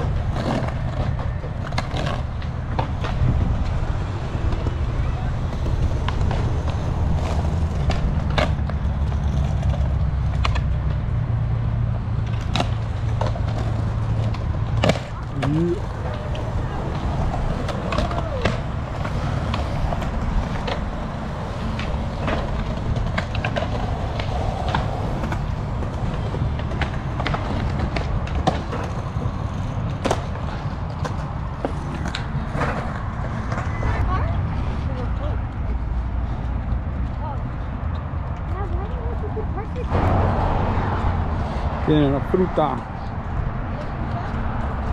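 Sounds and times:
skateboard clacks: 0.0 - 33.7
skateboard rumble on concrete: 0.0 - 44.9.

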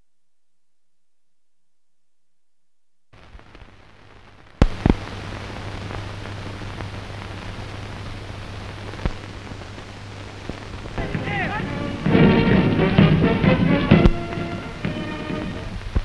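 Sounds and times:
film soundtrack hiss and crackle: 3.0 - 16.0
sharp pops: 4.5 - 15.0.

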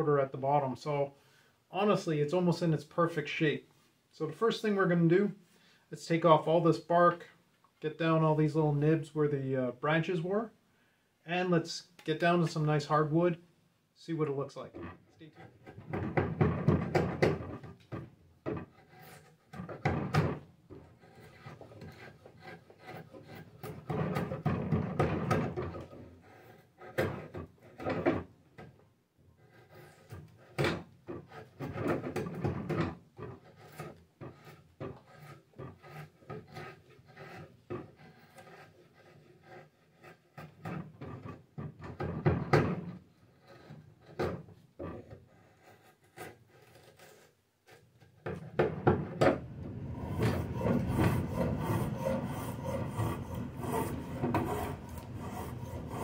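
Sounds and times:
spokeshave shaving wood: 14.6 - 28.2, 29.4 - 48.2, 49.4 - 56.0
drawknife scraping bark: 17.0 - 24.4, 29.4 - 32.3, 33.3 - 41.4, 43.3 - 48.1, 50.0 - 56.0.

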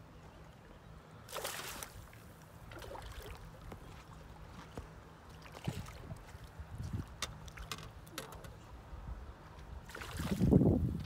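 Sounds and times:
fish splashing in water: 1.3 - 3.4
small knocks and clicks: 7.1 - 8.6.

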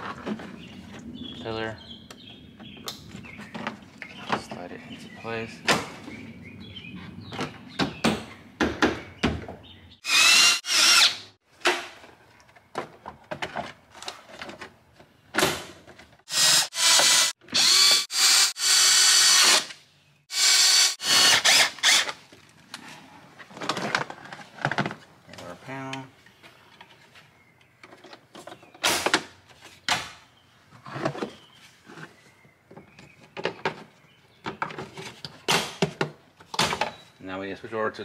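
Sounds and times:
impact driver bursts: 16.3 - 22.2.

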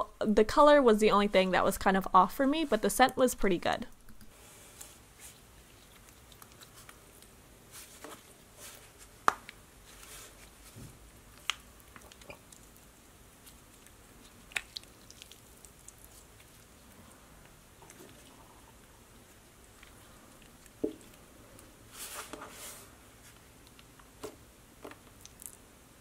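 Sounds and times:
slime squishing: 5.1 - 22.5.

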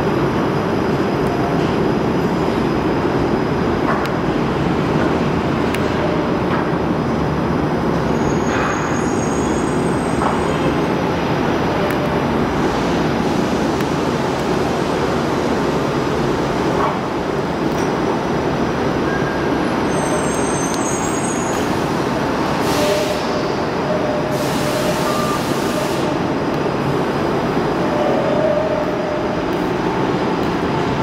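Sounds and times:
rumble of transit vehicles: 0.0 - 31.0
streetcar rolling past: 0.0 - 31.0
released air hissing: 24.3 - 26.2.

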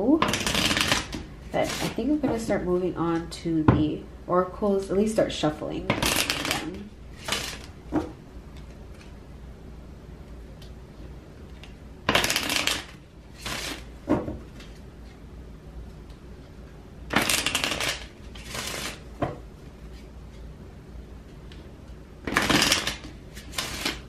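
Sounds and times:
cards being shuffled: 6.0 - 7.8, 8.5 - 9.2, 11.5 - 13.9, 17.1 - 19.0, 22.2 - 24.0.

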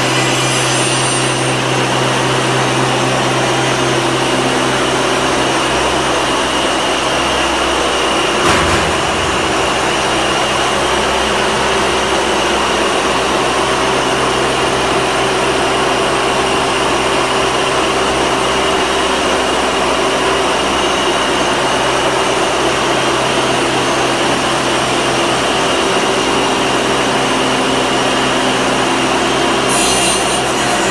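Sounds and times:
loud steady machine drone: 0.0 - 30.9
brief knock: 8.4 - 10.4.

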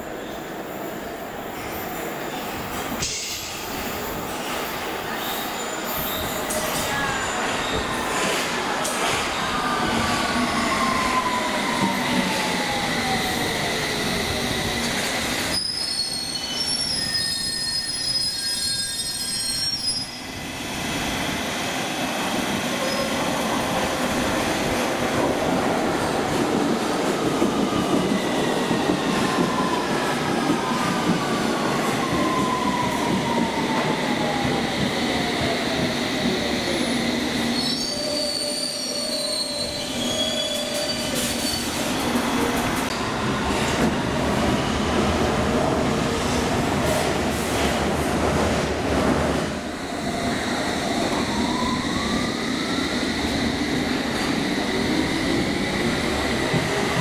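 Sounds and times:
high wheel squeal: 15.5 - 20.2.

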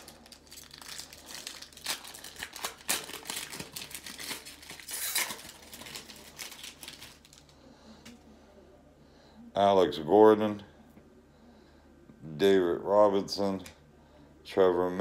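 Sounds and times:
foil wrapper tearing and crinkling: 0.0 - 7.5.

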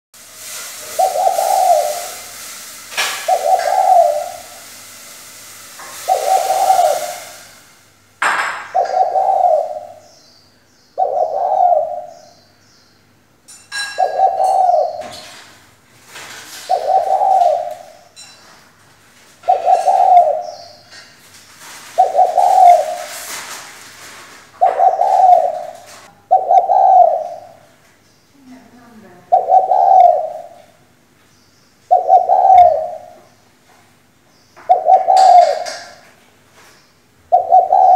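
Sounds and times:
dove cooing: 0.9 - 2.2, 3.1 - 4.6, 6.0 - 7.5, 8.6 - 10.1, 11.0 - 12.2, 13.8 - 15.3, 16.6 - 18.1, 19.4 - 20.8, 21.9 - 23.2, 24.6 - 27.7, 29.3 - 30.7, 31.9 - 33.2, 34.7 - 36.0, 37.3 - 37.9.

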